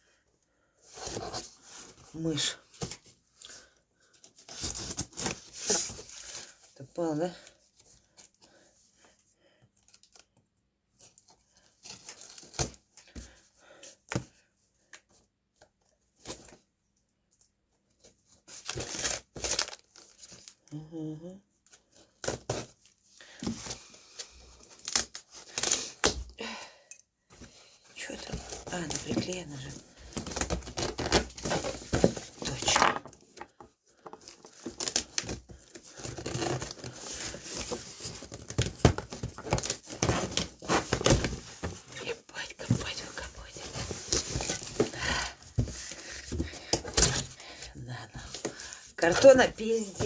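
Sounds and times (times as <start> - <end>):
tape and cardboard ripping: 24.6 - 26.3, 30.1 - 33.2, 34.3 - 41.5.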